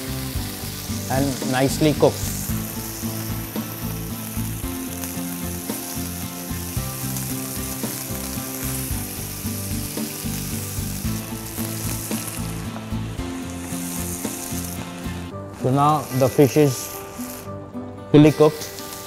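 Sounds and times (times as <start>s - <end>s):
fish sizzling in oil: 0.0s - 17.6s, 18.2s - 19.0s.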